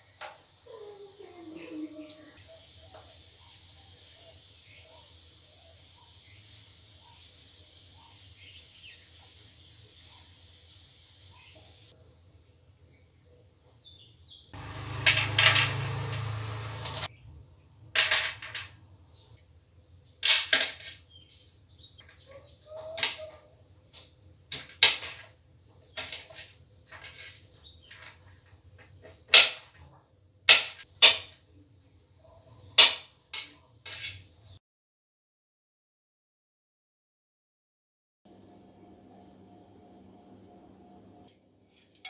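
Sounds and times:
knife scraping: 0:33.4 - 0:34.3.

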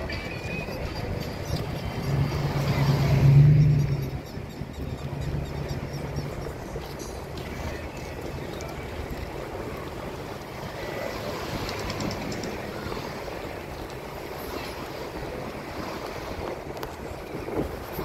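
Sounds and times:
road and engine noise inside car: 0:00.0 - 0:17.1.

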